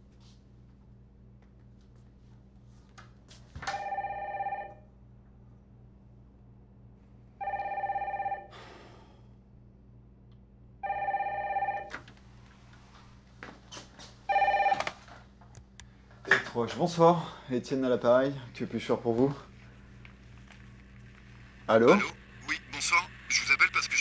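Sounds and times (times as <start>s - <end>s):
steady low hum: 0.0s - 24.0s
telephone electronic ring: 3.7s - 4.9s, 7.4s - 8.5s, 10.8s - 12.0s, 14.3s - 15.1s.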